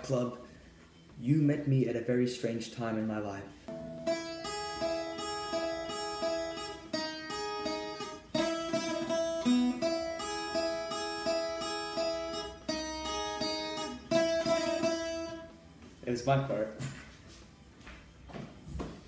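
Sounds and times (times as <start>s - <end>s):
plucked string melody: 3.7s - 15.6s.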